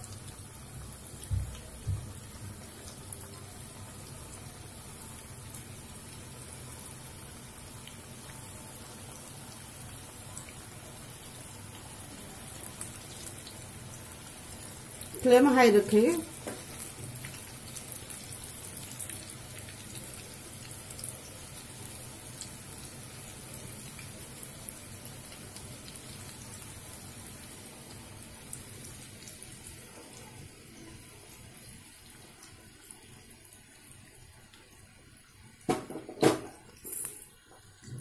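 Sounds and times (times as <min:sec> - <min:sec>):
food sizzling in hot oil: 0:00.0 - 0:37.9
loud knocks: 0:35.7 - 0:36.6.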